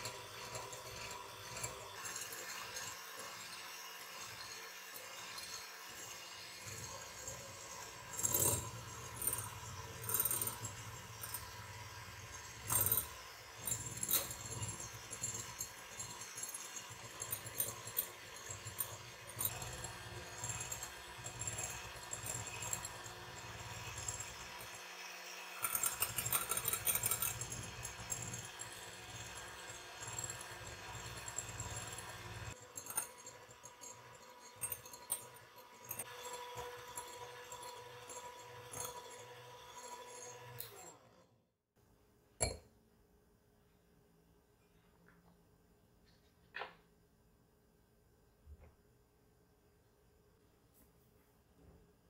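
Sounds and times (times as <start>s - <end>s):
hand mixer motor humming: 0.0s - 41.0s.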